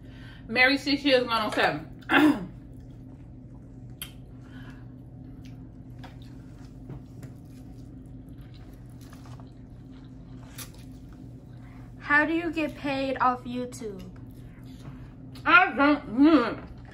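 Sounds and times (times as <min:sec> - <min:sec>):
steady low hum: 0:00.0 - 0:16.9
chewing and slurping: 0:02.6 - 0:11.9.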